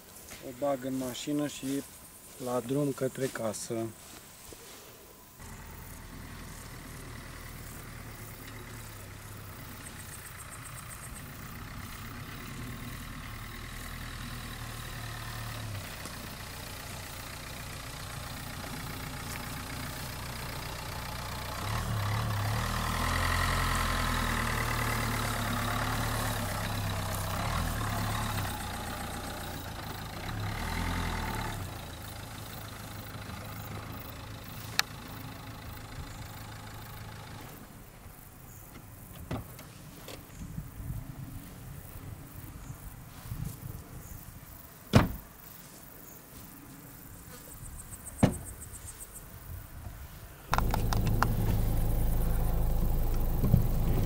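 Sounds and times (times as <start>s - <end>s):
car engine driving slowly: 0.0s - 44.7s, 45.6s - 54.0s.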